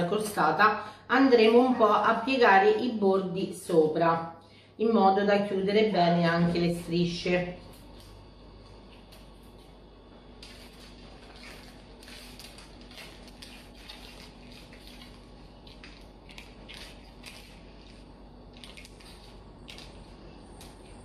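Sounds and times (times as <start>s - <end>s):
faint steady hum: 0.0s - 21.0s
soft rustles of pastry: 7.7s - 21.0s.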